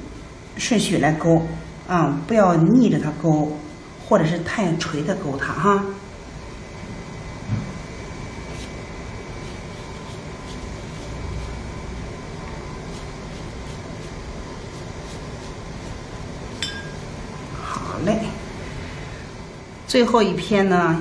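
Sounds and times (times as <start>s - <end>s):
brush on paper: 0.0s - 1.8s, 7.7s - 19.1s
background hiss and hum: 0.0s - 21.0s
brush clinking porcelain dish: 16.5s - 17.2s.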